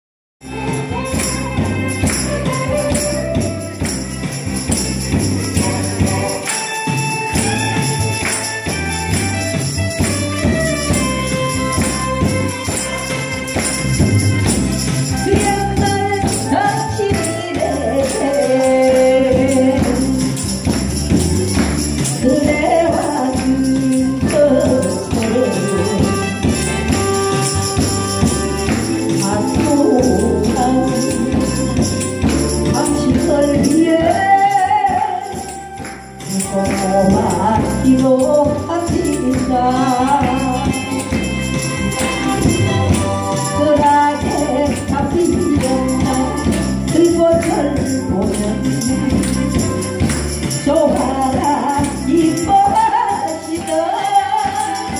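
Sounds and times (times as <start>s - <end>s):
recorded backing track: 0.4s - 54.9s
woman singing into a microphone: 15.0s - 20.8s, 21.6s - 54.9s.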